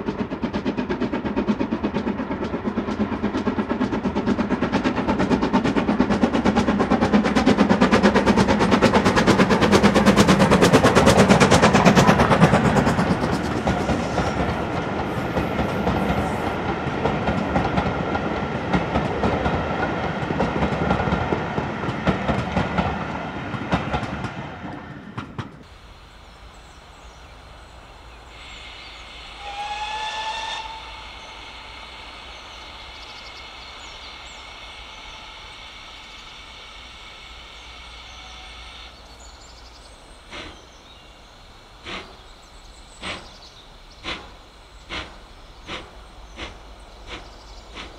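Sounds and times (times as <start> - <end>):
steam locomotive chuffing: 0.0 - 47.9
distant train whistle: 28.3 - 39.3.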